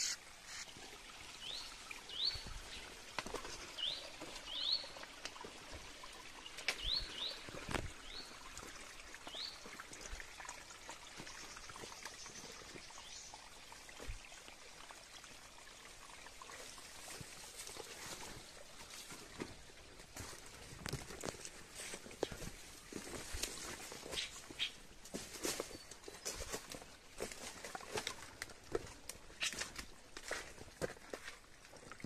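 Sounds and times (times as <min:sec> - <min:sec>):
water trickling: 0:00.0 - 0:32.0.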